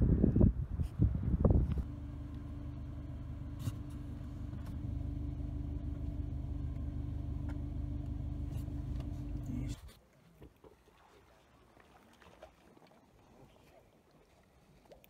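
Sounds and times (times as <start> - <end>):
engine idling: 1.8 - 9.9.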